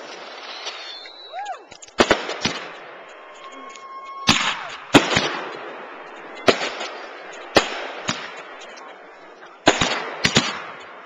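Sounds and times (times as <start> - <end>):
firework whistle: 0.0 - 1.8
firework bangs: 0.0 - 11.0.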